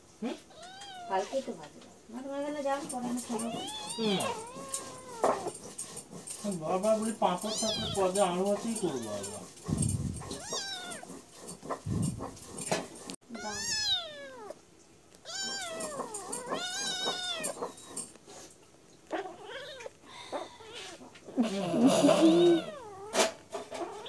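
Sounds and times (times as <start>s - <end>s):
kittens mewing: 3.2s - 5.8s, 6.9s - 14.6s, 15.2s - 18.1s, 19.1s - 24.0s.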